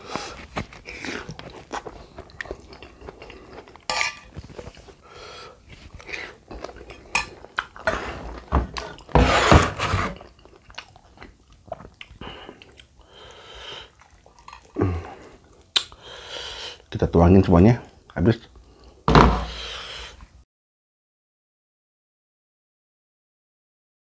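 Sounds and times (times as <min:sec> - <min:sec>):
person chewing: 0:00.0 - 0:05.0, 0:05.6 - 0:09.2, 0:10.2 - 0:16.2.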